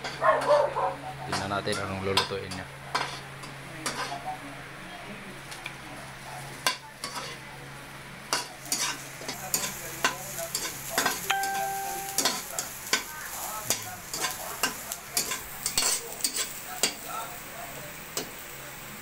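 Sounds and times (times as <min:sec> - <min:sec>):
garlic and onion sizzling in oil: 0:01.2 - 0:04.8, 0:05.4 - 0:19.0
metal spatula scraping a wok: 0:07.0 - 0:07.4
short steady tone: 0:11.3 - 0:12.4.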